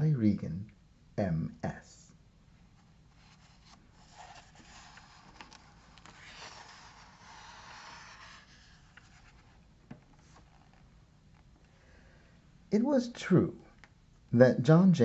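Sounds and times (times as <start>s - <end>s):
book page turning: 3.2s - 11.5s.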